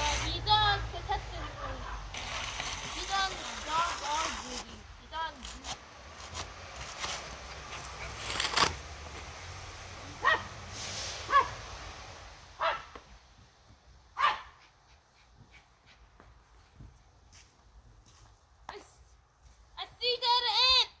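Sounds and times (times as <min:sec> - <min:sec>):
dog barking: 0:10.2 - 0:10.5, 0:11.3 - 0:11.6, 0:12.6 - 0:12.9, 0:14.2 - 0:14.6.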